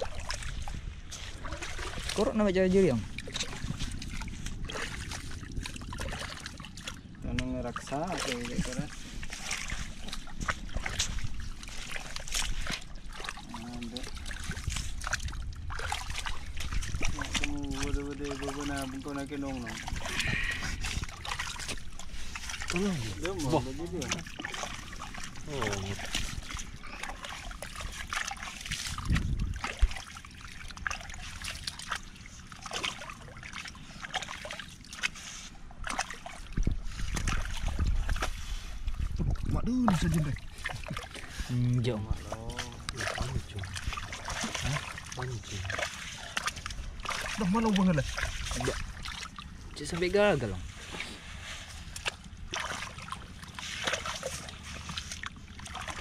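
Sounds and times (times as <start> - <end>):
steady low rumble: 0.0 - 34.0
seawater splashing and trickling: 0.0 - 56.0
small sharp splashes and ticks: 0.0 - 56.0.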